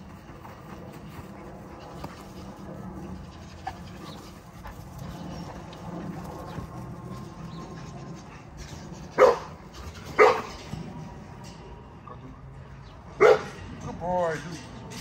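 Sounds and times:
puppy barking: 0:09.2 - 0:09.5, 0:10.2 - 0:10.5, 0:13.2 - 0:13.5.

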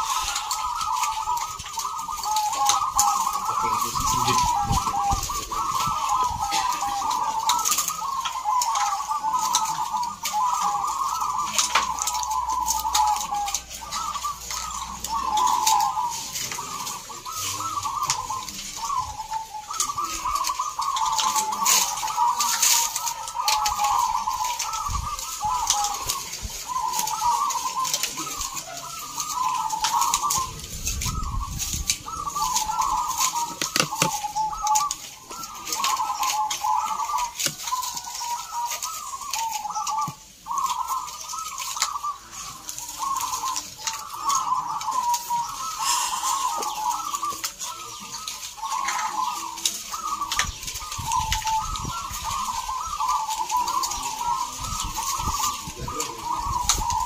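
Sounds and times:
doves cooing: 0:00.0 - 0:57.0.

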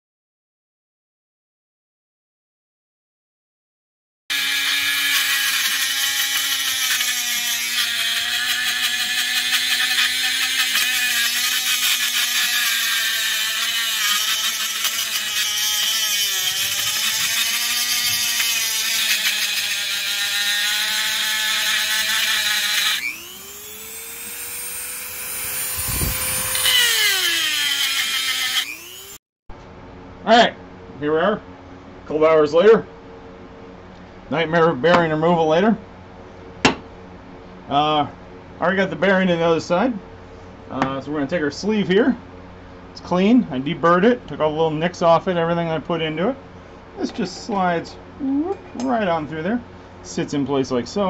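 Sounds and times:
rotary tool grinding metal: 0:04.3 - 0:29.2.

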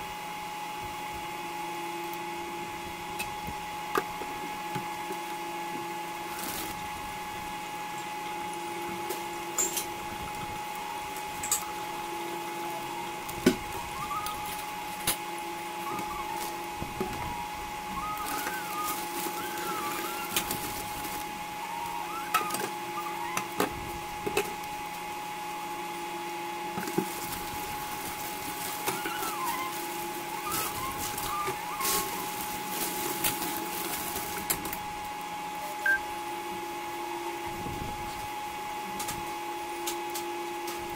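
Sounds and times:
cooktop low hum: 0:00.0 - 0:40.9
induction cooktop whine: 0:00.0 - 0:40.9.

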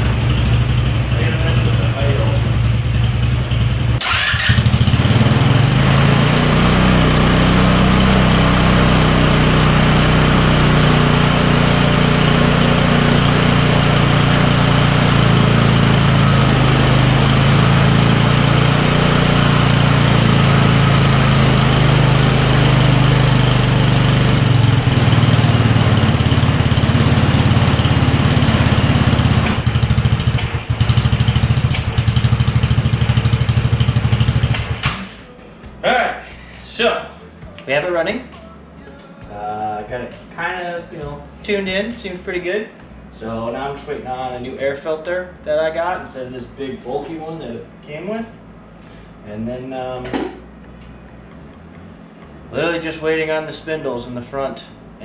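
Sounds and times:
scooter engine idling: 0:00.0 - 0:35.2.

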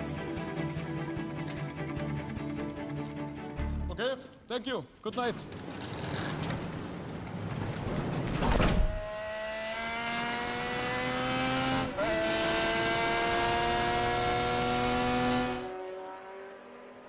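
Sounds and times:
racing car engine at high revs: 0:08.9 - 0:17.0.

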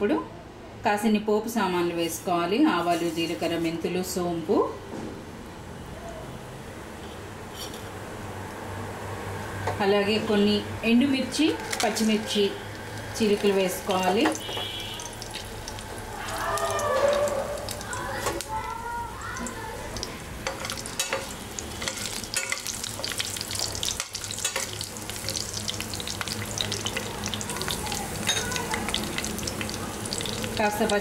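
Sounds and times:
spices sizzling in hot oil: 0:11.3 - 0:31.0.

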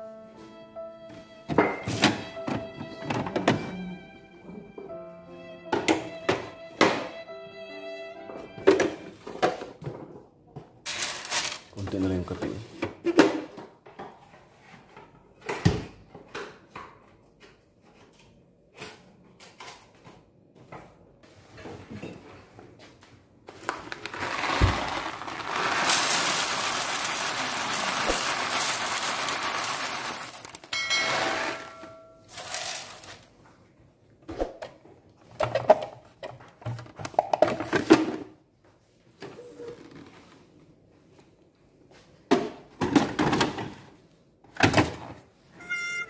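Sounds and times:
coffee beans pouring rattle: 0:10.9 - 0:11.6, 0:23.8 - 0:31.7, 0:32.3 - 0:33.3
brief tone: 0:45.6 - 0:46.0.

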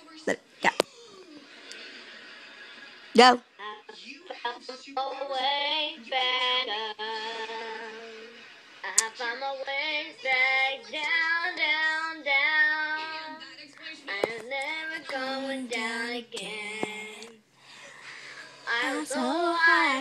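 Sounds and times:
girl singing unaccompanied: 0:08.8 - 0:13.4, 0:14.1 - 0:17.4, 0:18.6 - 0:20.0.

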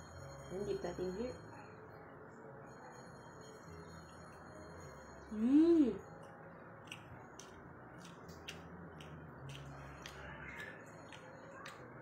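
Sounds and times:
crunchy chewing: 0:06.1 - 0:12.0.

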